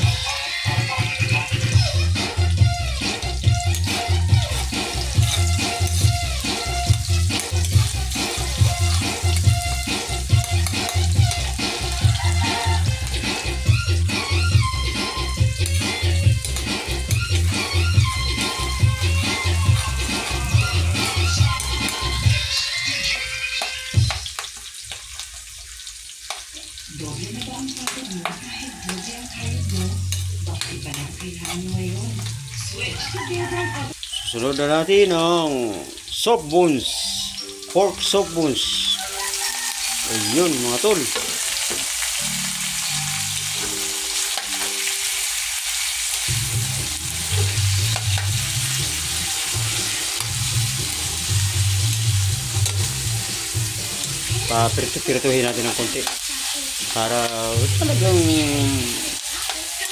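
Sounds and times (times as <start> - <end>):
onions sizzling in hot oil: 0.0 - 59.9
metal spatula scraping wok: 0.4 - 26.4, 27.3 - 34.5, 39.0 - 57.1.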